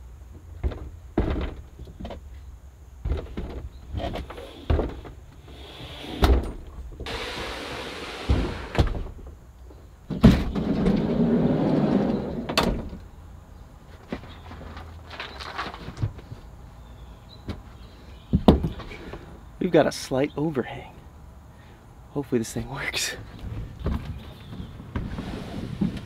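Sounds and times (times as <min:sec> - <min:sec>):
kayak hull scraping slide: 0:07.0 - 0:08.8, 0:10.7 - 0:12.5, 0:25.0 - 0:26.0.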